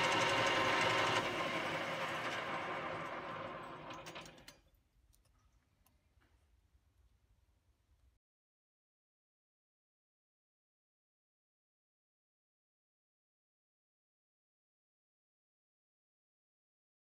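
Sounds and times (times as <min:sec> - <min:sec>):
metal lathe running: 0:00.0 - 0:04.5.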